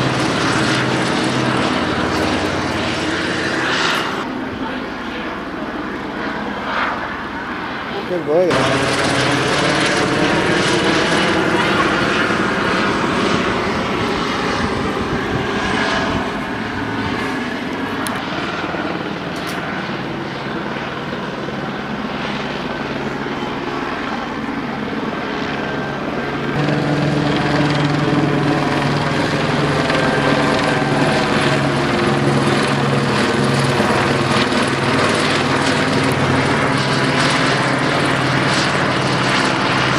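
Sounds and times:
helicopter rotor thudding: 0.0 - 4.4, 8.3 - 20.3, 26.4 - 39.9.

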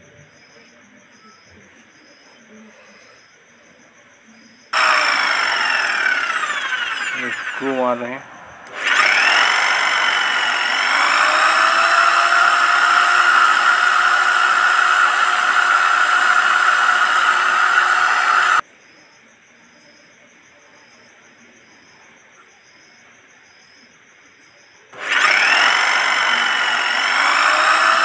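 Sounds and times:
electric drill boring into wood: 4.8 - 18.6, 25.0 - 28.0.

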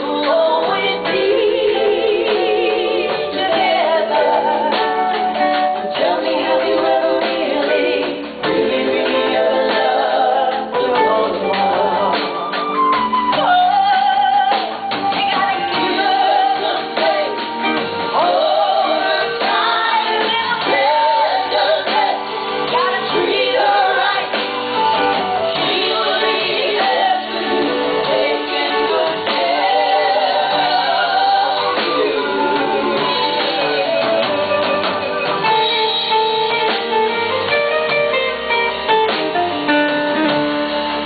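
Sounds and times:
band accompaniment: 0.0 - 41.0.

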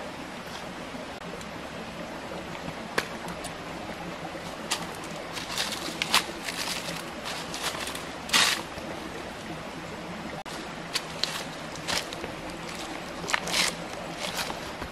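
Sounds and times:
steady background hiss: 0.0 - 14.9
leafy branches rustling: 3.3 - 9.2, 10.4 - 14.9.

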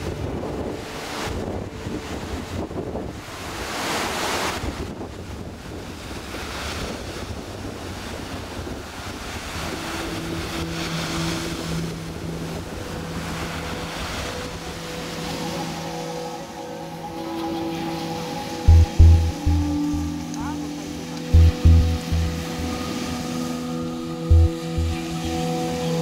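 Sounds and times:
wind buffeting microphone: 0.0 - 20.3
surf breaking on shore: 0.0 - 26.0.

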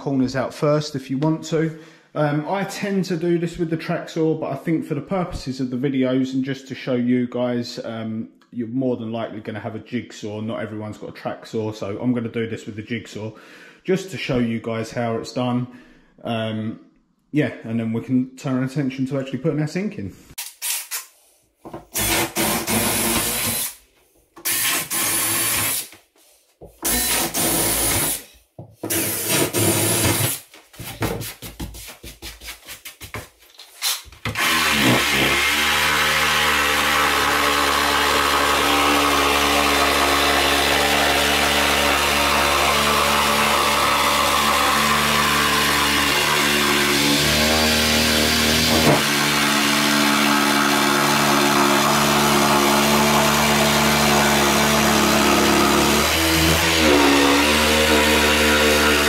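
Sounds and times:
jigsaw cutting worktop: 21.6 - 23.8, 24.4 - 26.0, 26.6 - 31.2, 34.2 - 59.0.

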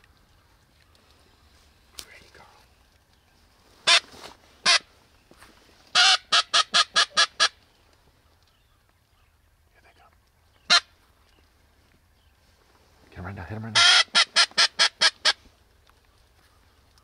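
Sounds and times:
duck call quacks: 3.9 - 4.8, 6.0 - 7.6, 13.7 - 15.4.

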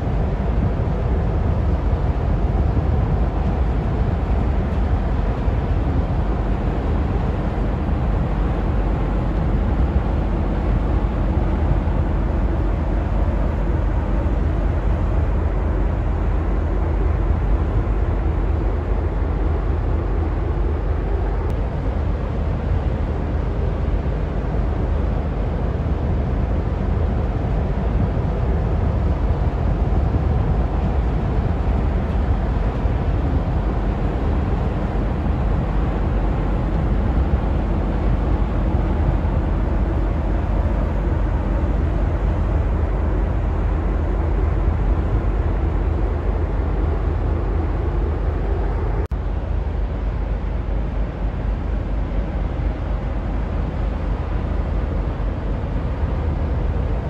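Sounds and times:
water washing along hull: 0.0 - 57.0.

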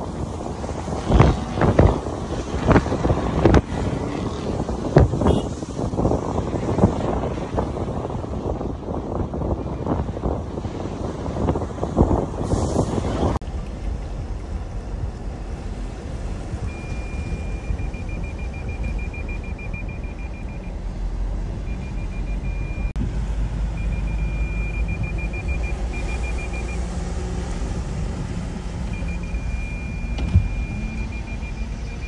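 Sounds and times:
car driving through floodwater: 0.0 - 32.0
high electronic warning beeps: 16.6 - 20.8, 21.7 - 23.0, 23.8 - 26.8, 28.9 - 32.0.

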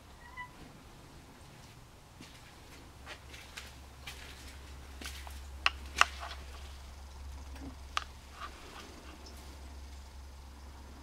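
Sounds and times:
low steady hum: 0.0 - 11.0
sharp clicks and light knocks: 3.4 - 9.4.

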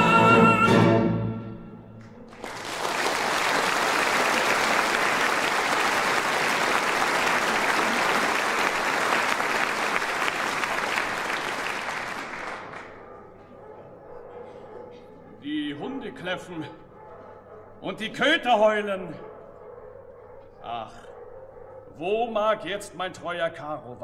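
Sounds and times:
audience applauding: 2.0 - 13.0.

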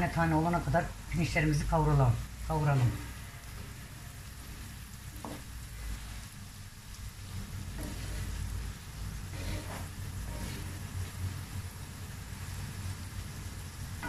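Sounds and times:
rice sizzling in butter: 0.0 - 14.0
wooden spoon stirring: 2.6 - 6.3, 7.3 - 11.6.

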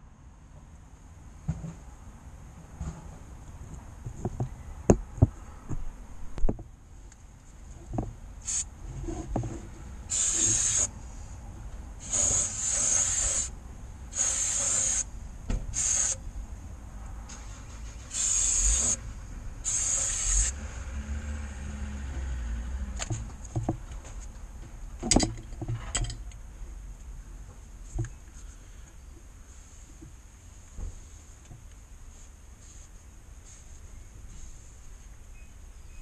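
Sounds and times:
aerosol spray can hissing: 8.4 - 8.7, 10.1 - 10.9, 12.0 - 13.5, 14.1 - 15.1, 15.8 - 16.2, 18.1 - 19.0, 19.6 - 20.6.

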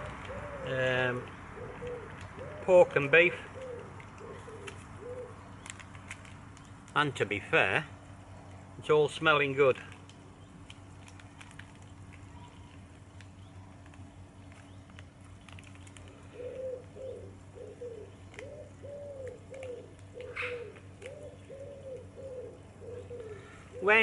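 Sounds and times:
pigeon cooing: 0.0 - 5.5, 16.0 - 24.0.

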